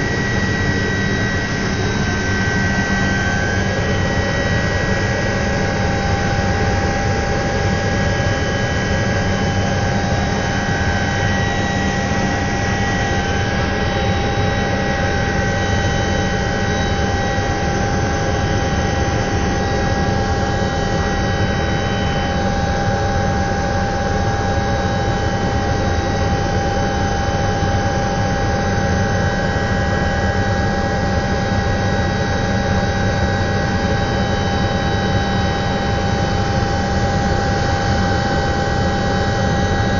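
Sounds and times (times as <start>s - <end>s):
low cabin drone: 0.0s - 26.8s
helicopter turbine whine: 0.0s - 39.9s.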